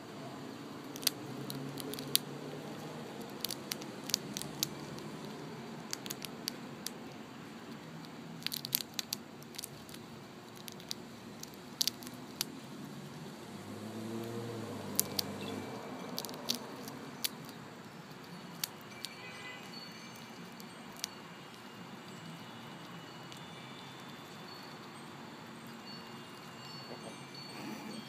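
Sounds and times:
chipmunk gnawing peanut shell: 0.6s - 27.3s.

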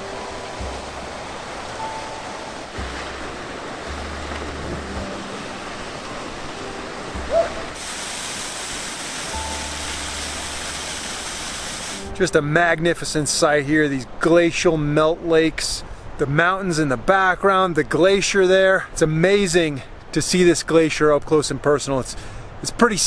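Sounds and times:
waterfall rushing: 0.0s - 12.2s
soft music with low bass notes: 0.0s - 17.0s
short rising note: 7.2s - 12.2s.

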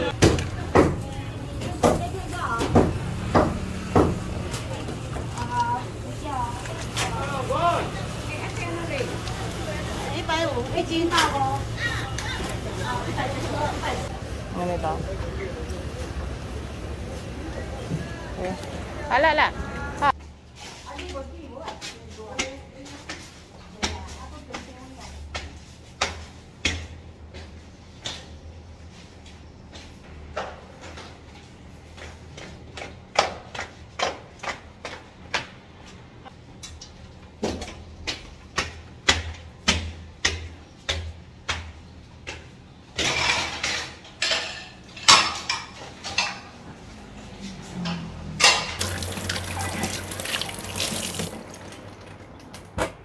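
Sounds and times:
footsteps on concrete stairs: 21.0s - 36.1s
things being rinsed: 48.4s - 52.7s.

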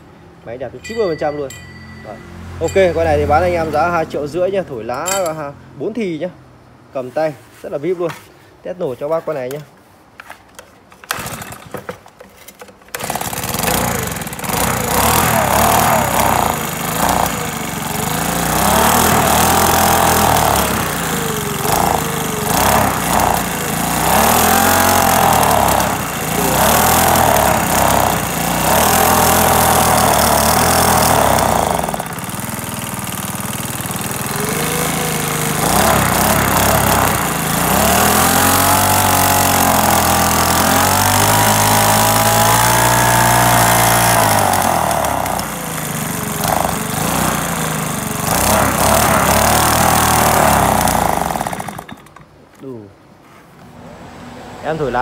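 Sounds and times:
leaf blower engine revving: 2.6s - 4.2s, 11.0s - 11.8s, 12.9s - 52.3s.

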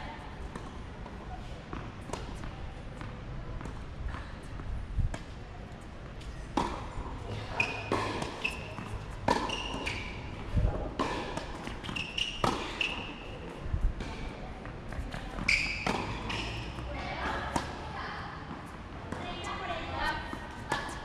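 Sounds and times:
tennis ball bouncing: 1.7s - 5.3s, 6.3s - 7.0s, 7.6s - 13.3s, 14.0s - 17.8s, 20.2s - 21.0s
shoe squeaks on court: 7.4s - 10.4s, 11.7s - 13.4s, 15.4s - 16.8s
racket striking tennis ball: 7.6s - 13.2s, 15.1s - 17.8s, 20.7s - 21.0s.

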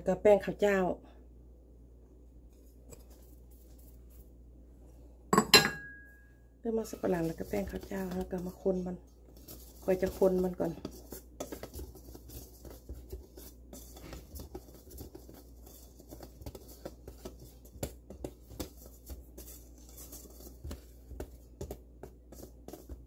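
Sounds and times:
whisk scratching in metal bowl: 6.8s - 23.0s.

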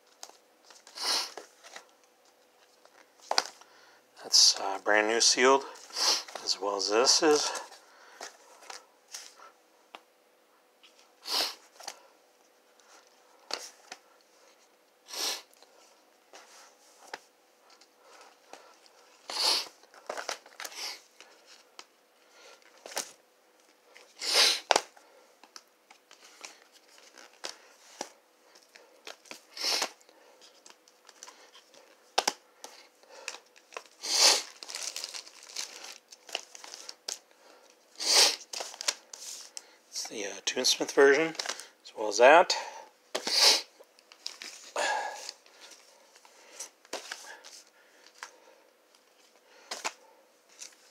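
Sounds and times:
plastic record sleeves crinkling: 0.0s - 3.7s, 16.3s - 21.9s, 22.5s - 37.8s, 38.4s - 41.7s, 43.9s - 50.9s.

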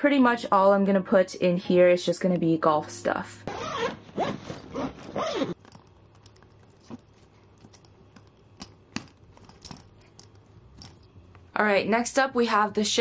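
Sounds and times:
zipper being pulled: 3.5s - 5.6s.

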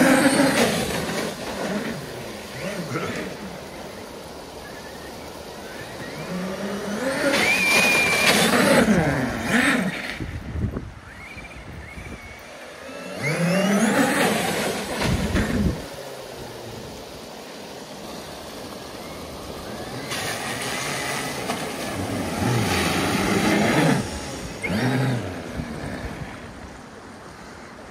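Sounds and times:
rush of water: 0.0s - 27.9s
water spraying from tyres: 0.0s - 27.9s
car engine passing: 11.1s - 16.0s, 16.6s - 27.1s.

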